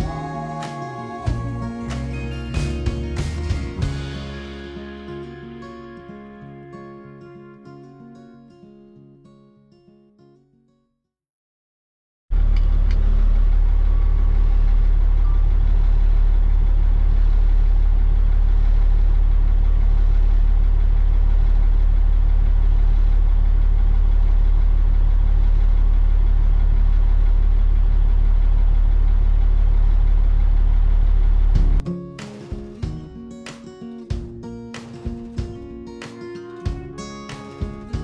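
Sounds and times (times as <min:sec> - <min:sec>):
truck engine idling: 0:12.3 - 0:31.8.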